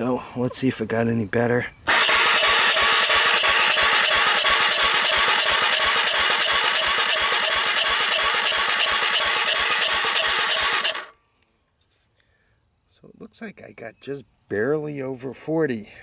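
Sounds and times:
starter cranking engine: 1.9 - 11.2.

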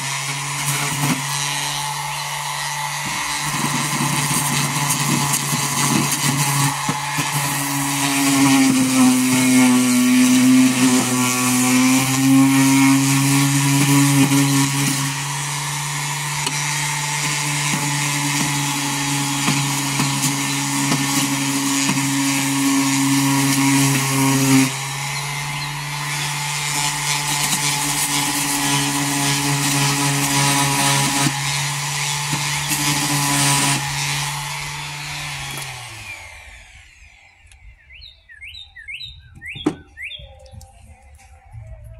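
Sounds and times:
orbital sander on wood: 0.0 - 37.5.

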